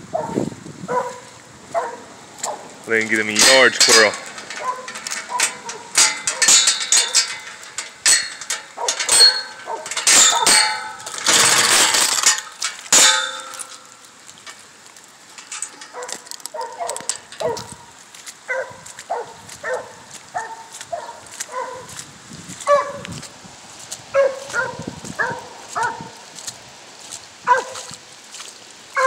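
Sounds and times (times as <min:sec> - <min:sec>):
distant dog barking: 0:00.1 - 0:02.7, 0:04.5 - 0:07.2, 0:08.8 - 0:10.6, 0:15.9 - 0:17.7, 0:18.5 - 0:22.0, 0:22.7 - 0:23.0, 0:24.1 - 0:26.2, 0:27.4 - 0:27.9
metallic clanks and clinks: 0:02.9 - 0:14.7, 0:15.3 - 0:17.8.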